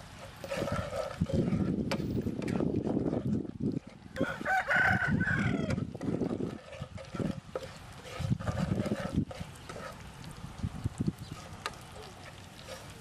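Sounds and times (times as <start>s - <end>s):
spatula scraping frying pan: 0.0s - 13.0s
rooster crowing: 4.2s - 5.8s.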